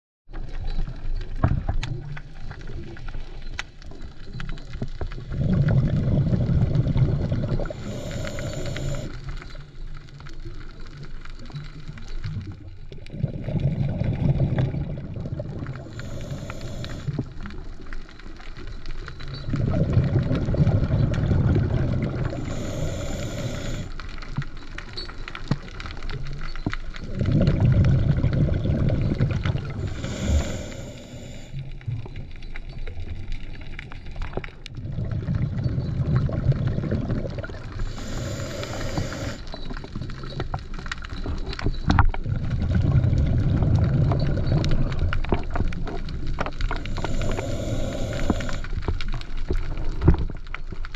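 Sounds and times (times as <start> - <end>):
bubbles burbling underwater: 0.3 - 50.9
regulator inhalation hiss: 7.6 - 9.2, 15.8 - 17.2, 22.3 - 24.0, 29.7 - 31.6, 37.8 - 39.5, 46.8 - 48.8.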